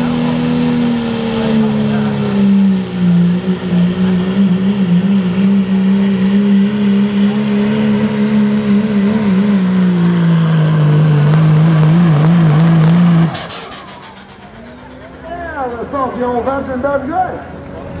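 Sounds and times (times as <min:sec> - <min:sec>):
diesel truck engine at high revs: 0:00.0 - 0:18.0.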